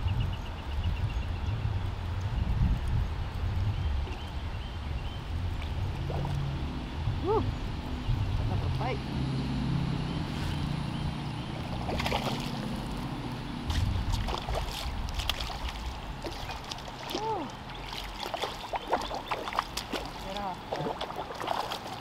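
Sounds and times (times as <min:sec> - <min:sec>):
fish splashing: 0:11.6 - 0:13.0, 0:13.7 - 0:22.0.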